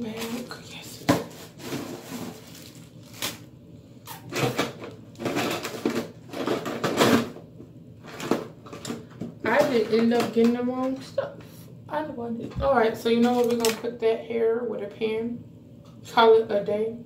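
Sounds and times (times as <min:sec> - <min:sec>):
rustling in a bag: 0:01.3 - 0:03.4.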